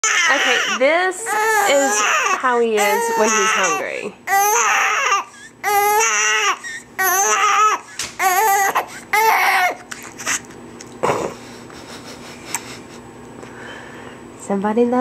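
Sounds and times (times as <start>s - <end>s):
newborn baby crying: 0.0s - 10.5s.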